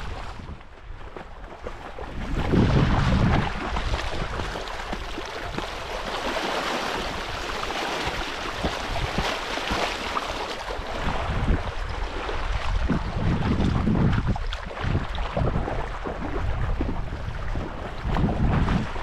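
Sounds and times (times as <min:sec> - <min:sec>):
stream water rushing: 0:02.5 - 0:14.1.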